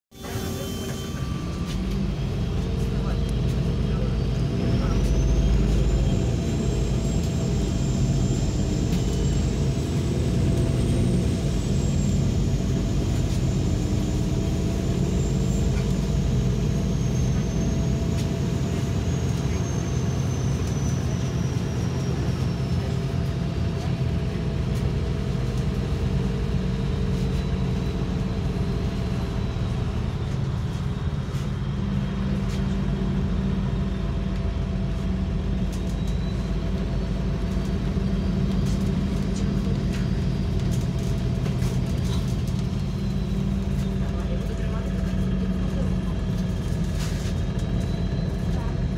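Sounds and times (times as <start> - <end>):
thin high whine: 0.1 - 1.8
vehicle engine and road noise: 0.1 - 48.9.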